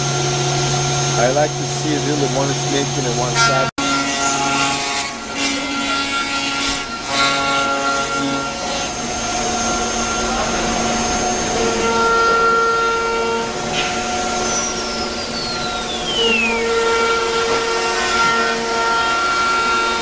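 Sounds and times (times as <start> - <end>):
machine tones: 0.0 - 19.2
router spindle whine: 0.0 - 20.0
router bit hissing in wood: 14.3 - 16.8.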